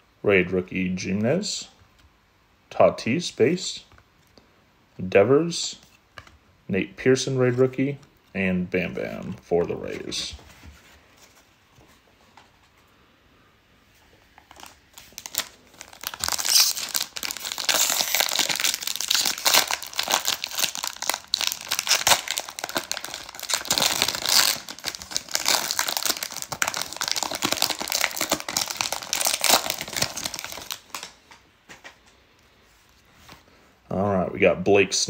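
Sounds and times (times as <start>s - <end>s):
foil wrapper tearing and crinkling: 14.5s - 31.2s.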